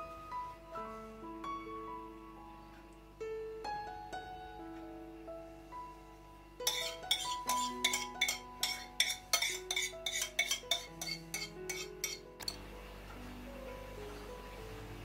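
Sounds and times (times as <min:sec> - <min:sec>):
wire whisk clinking against bowl: 0:06.6 - 0:12.6.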